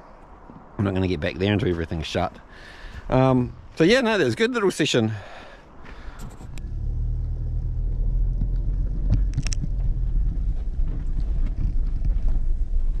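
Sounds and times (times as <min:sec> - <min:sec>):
steady low rumble: 0:06.0 - 0:13.0.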